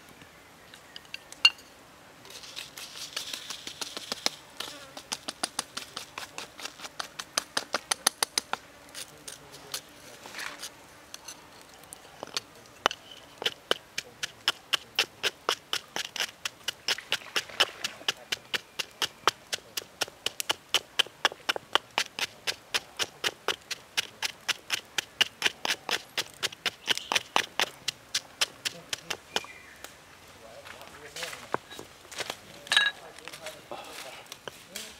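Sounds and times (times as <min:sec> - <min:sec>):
pestle pounding in stone mortar: 0:12.2 - 0:29.5.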